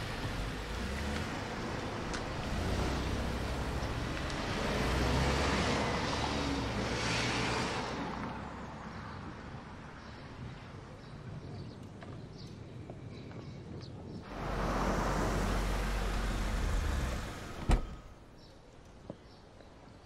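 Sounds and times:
cars driving past: 0.0 - 10.0, 14.2 - 18.3.

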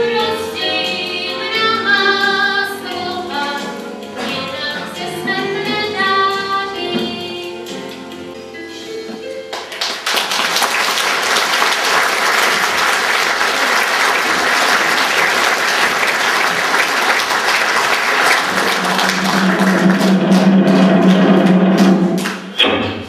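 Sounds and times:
music: 0.0 - 23.0
audience applauding: 9.5 - 22.6.

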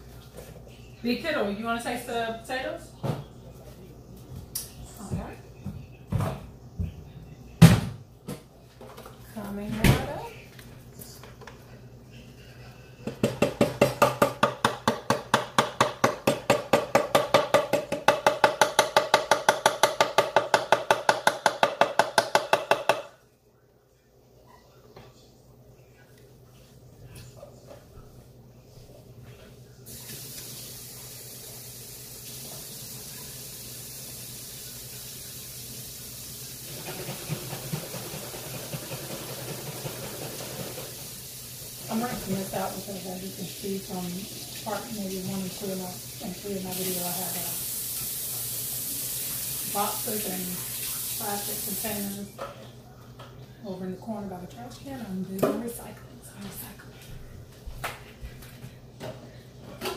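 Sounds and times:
utensil knocking against bowl: 13.1 - 23.1.

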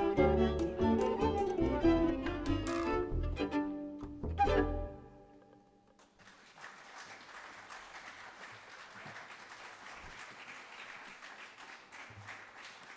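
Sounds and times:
string notes: 0.0 - 5.9
audience applause: 6.1 - 12.9.

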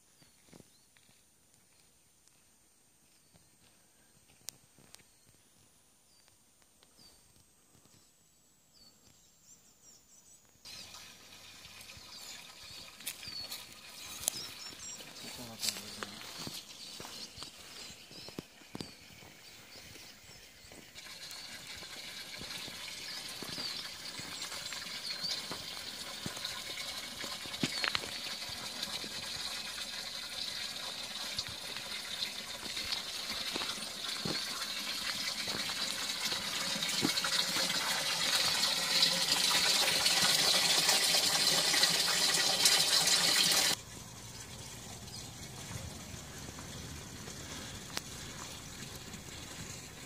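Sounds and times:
water running and splashing: 10.7 - 18.6, 20.8 - 50.0.

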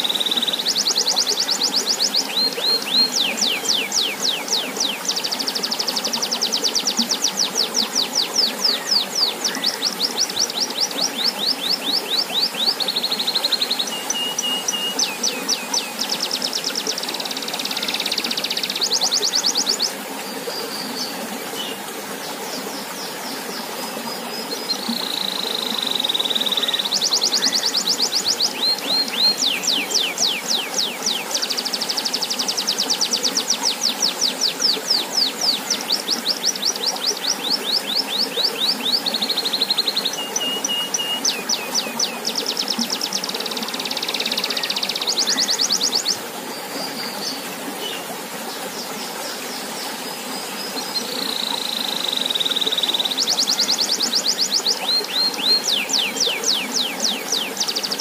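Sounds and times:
fountain spout pouring into pond: 0.0 - 58.0
canary singing trills: 51.0 - 58.0.

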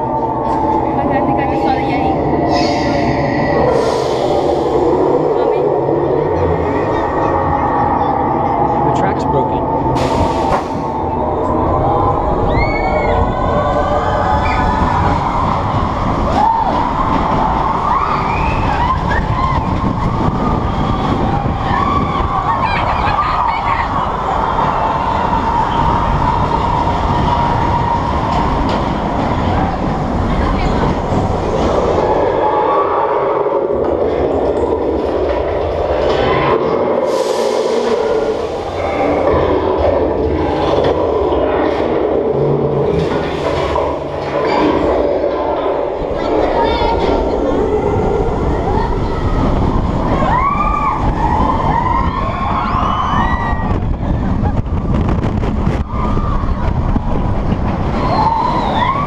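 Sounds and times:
roller coaster wheels rumbling: 0.0 - 59.0
wind noise: 0.0 - 59.0
riders screaming: 49.3 - 54.5, 57.8 - 59.0.

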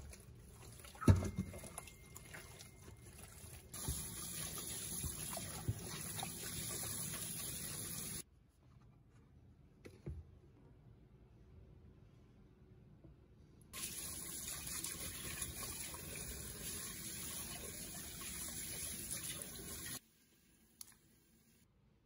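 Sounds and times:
hands rubbing and rinsing: 0.0 - 8.2.

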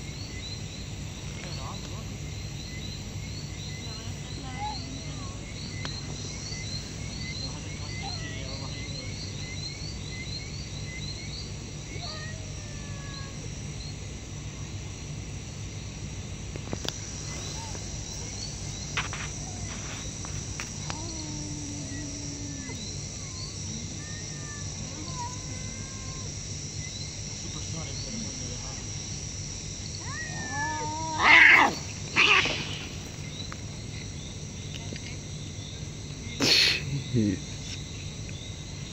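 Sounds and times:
crickets chirping: 0.0 - 38.9
high insect whine: 0.0 - 38.9.

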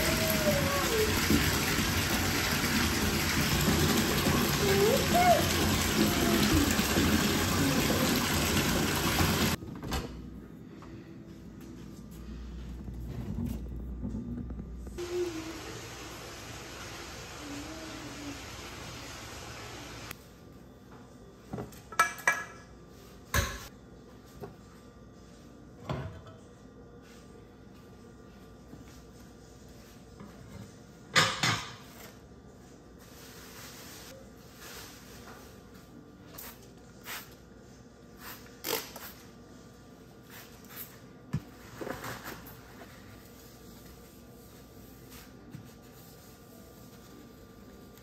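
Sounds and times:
pots and pans clanking on stovetop: 31.1 - 31.9.

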